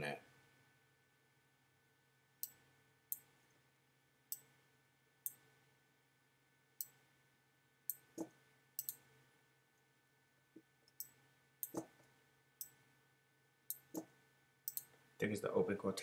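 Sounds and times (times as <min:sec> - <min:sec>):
faint steady hum: 0:00.0 - 0:16.0
computer mouse clicks: 0:07.9 - 0:09.0, 0:10.9 - 0:11.9, 0:13.7 - 0:14.1, 0:14.7 - 0:14.9.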